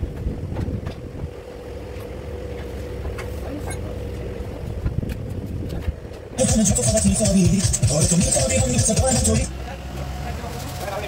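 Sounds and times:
machine humming: 6.4s - 9.5s.

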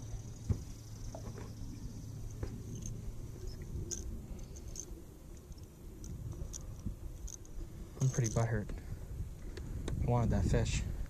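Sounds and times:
fishing lure clicks and rustles: 2.3s - 8.7s.

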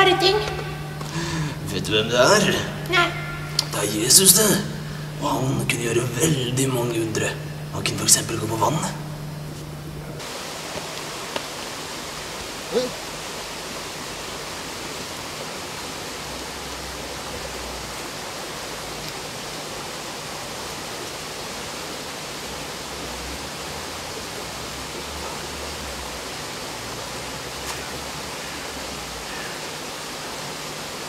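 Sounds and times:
river rushing over stones: 10.2s - 31.0s.

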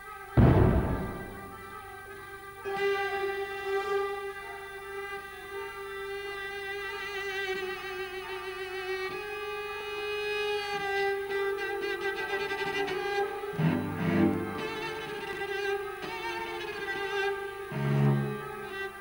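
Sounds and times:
orchestra strings playing: 0.4s - 2.0s.

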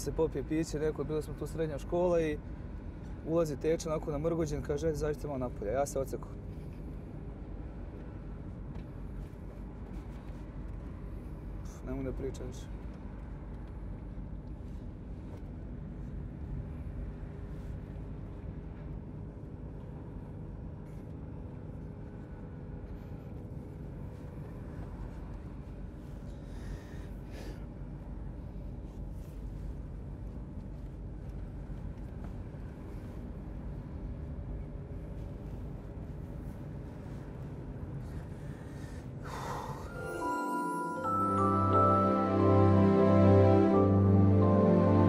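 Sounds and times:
man sniffing and crying: 38.5s - 40.1s
music: 39.8s - 45.0s.

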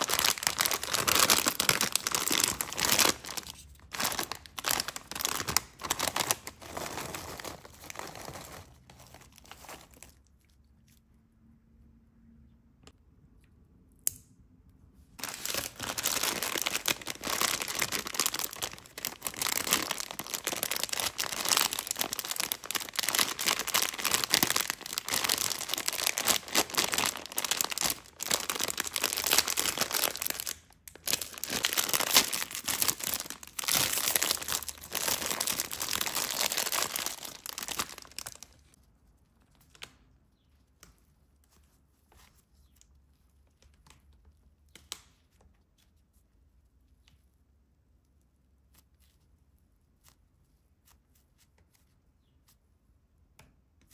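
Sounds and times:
plastic wrapper crinkling and tearing: 0.0s - 10.5s, 15.2s - 39.9s.

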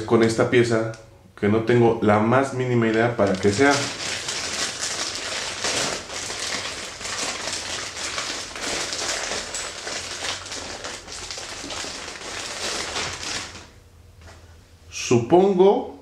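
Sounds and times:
plastic bag crinkling: 2.8s - 13.8s.

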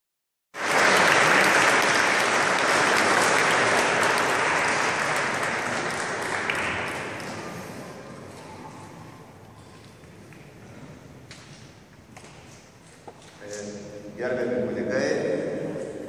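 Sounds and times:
congregation applauding: 0.6s - 8.4s.

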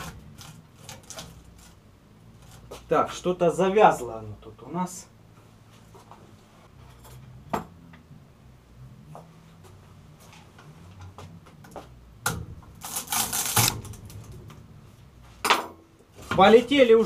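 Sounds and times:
metallic scraping and clinking: 6.7s - 7.6s.

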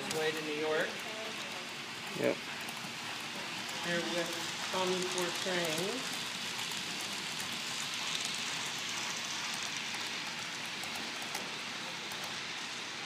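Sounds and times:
model train wheels on rails: 0.0s - 13.0s.

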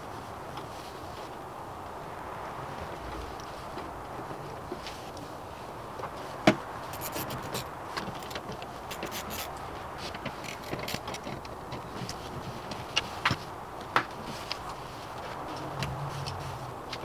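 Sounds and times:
steady background noise: 0.0s - 17.0s
hand tools clicking and rattling: 6.9s - 12.2s.

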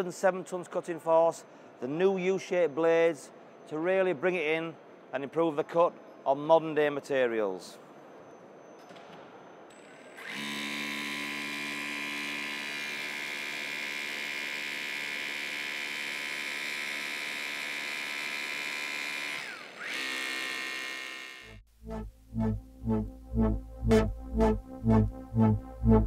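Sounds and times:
electric motor and pump whine: 10.2s - 21.6s.

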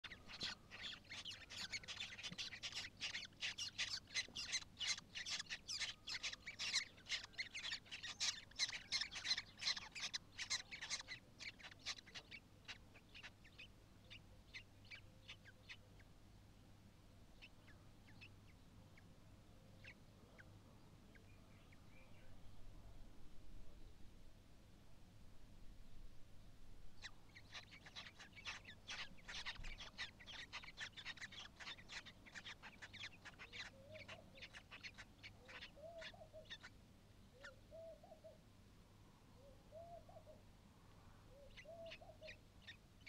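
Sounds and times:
chicks peeping: 0.0s - 13.7s, 27.0s - 36.1s.

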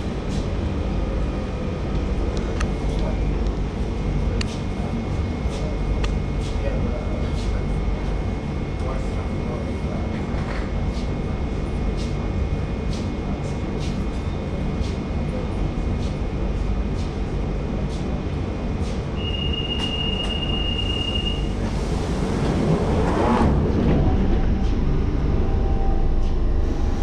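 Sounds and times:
underground train rumbling: 0.0s - 27.0s
loud whine: 19.1s - 27.0s
high wheel squeal: 19.2s - 21.6s.

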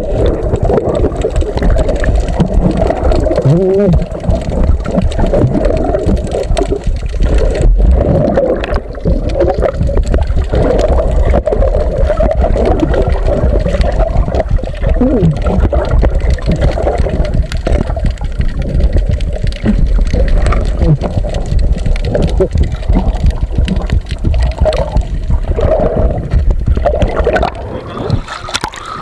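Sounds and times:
underwater rumble and gurgling: 0.0s - 29.0s.

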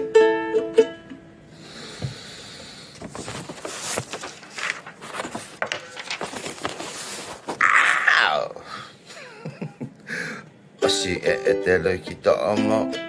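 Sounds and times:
ukulele chord strummed: 0.0s - 1.4s, 10.8s - 13.0s
handling knocks and rustling: 3.0s - 7.6s.

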